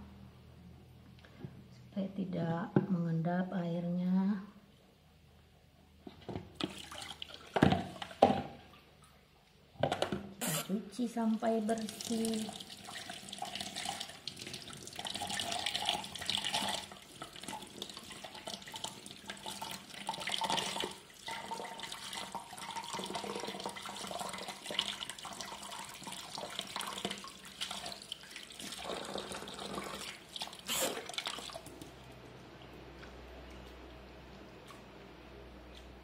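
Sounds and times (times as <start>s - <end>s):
tap water running into a sink: 11.6s - 32.0s.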